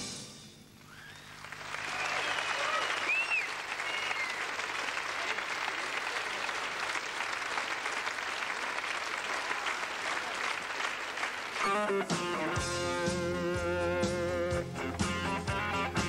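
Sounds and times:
audience applauding: 0:00.9 - 0:12.6
band music: 0:11.5 - 0:16.0.

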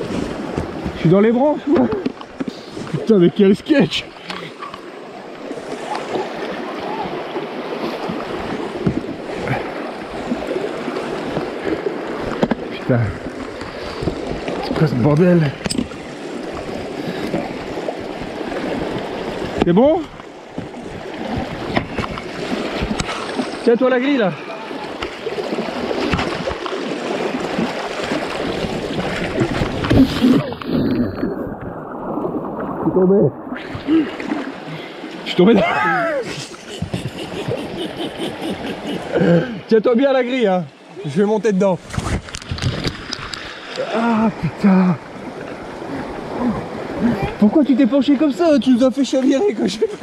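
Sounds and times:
river water rushing: 0:00.0 - 0:50.0
knocks against kayak hull: 0:00.4 - 0:01.1, 0:08.8 - 0:09.1.

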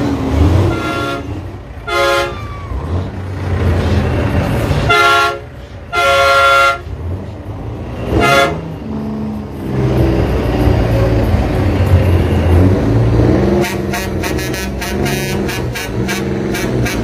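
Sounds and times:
truck engine idling: 0:00.0 - 0:17.0
truck air horn blasts: 0:00.6 - 0:02.5, 0:04.8 - 0:06.9, 0:08.1 - 0:08.7, 0:13.5 - 0:17.0.

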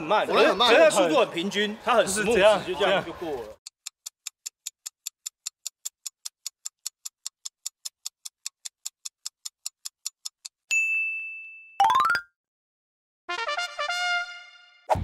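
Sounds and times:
stopwatch ticking: 0:03.6 - 0:10.7.

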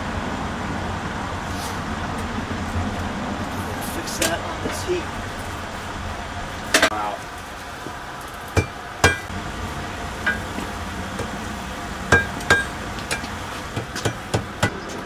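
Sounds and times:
steady background rush: 0:00.0 - 0:15.0
hammer striking metal on anvil: 0:08.6 - 0:09.3, 0:10.2 - 0:10.6, 0:12.1 - 0:15.0.

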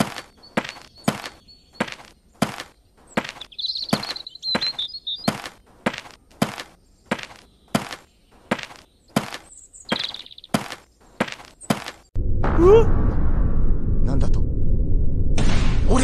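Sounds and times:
cartoon boot footsteps: 0:00.0 - 0:12.1.

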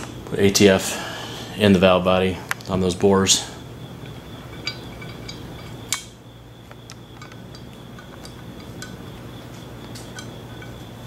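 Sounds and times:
metal parts clicking: 0:04.4 - 0:06.2.

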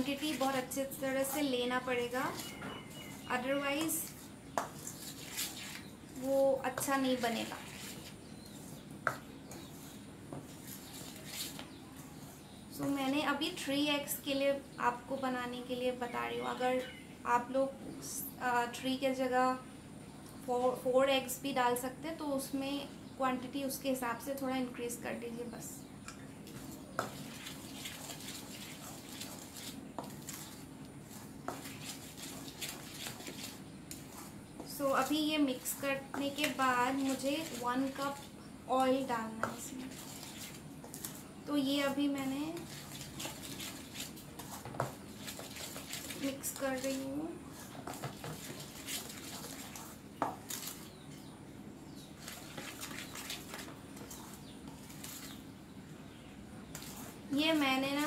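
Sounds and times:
spoon scraping steel bowl: 0:00.0 - 0:05.9, 0:26.5 - 0:50.9, 0:56.7 - 0:58.0.

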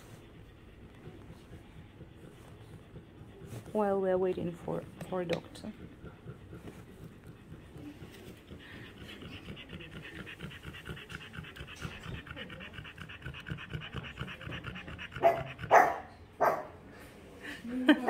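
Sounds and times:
small dog panting: 0:00.0 - 0:16.6
dog barking: 0:14.7 - 0:16.8.

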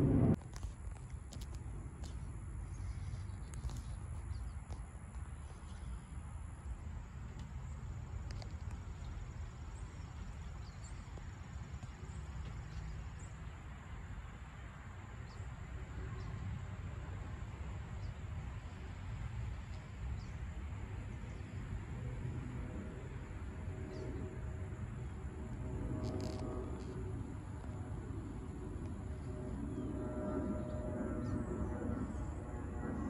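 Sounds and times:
distant jet airliner rumbling: 0:00.0 - 0:00.4, 0:20.1 - 0:33.0
jet engine whine: 0:00.0 - 0:10.3, 0:14.7 - 0:33.0.

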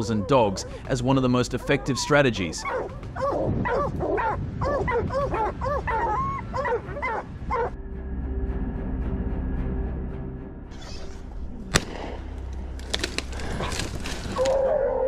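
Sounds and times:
dogs yelping and barking: 0:00.0 - 0:07.8, 0:13.6 - 0:15.0.

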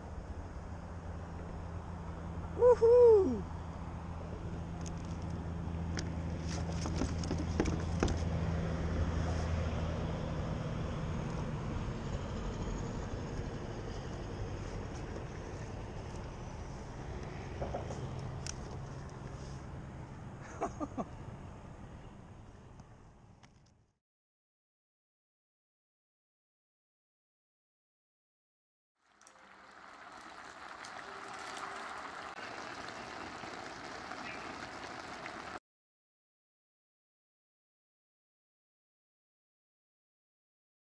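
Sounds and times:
low engine hum: 0:00.0 - 0:23.3, 0:29.4 - 0:35.6
wind: 0:00.0 - 0:23.9, 0:29.0 - 0:35.6
broth bubbling in a pot: 0:29.0 - 0:35.6
water noise: 0:29.0 - 0:35.6.

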